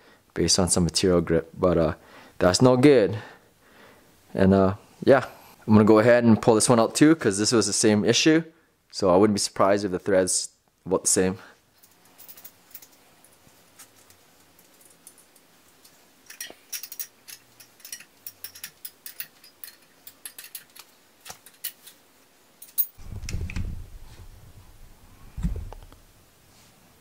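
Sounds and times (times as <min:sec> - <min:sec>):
wrench clicking on metal nuts: 0:16.3 - 0:21.8
low rumble of handling noise: 0:22.7 - 0:26.5.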